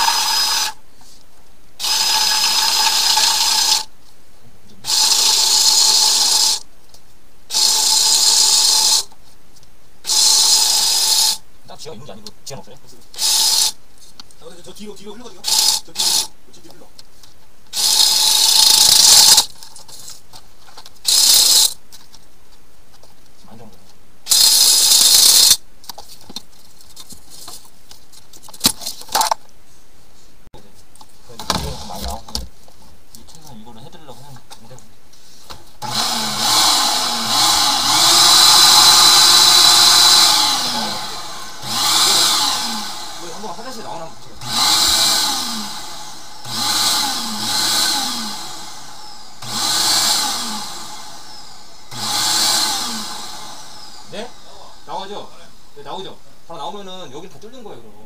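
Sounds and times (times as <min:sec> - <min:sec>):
drain cleaning machine whirring: 0:35.8 - 0:55.2.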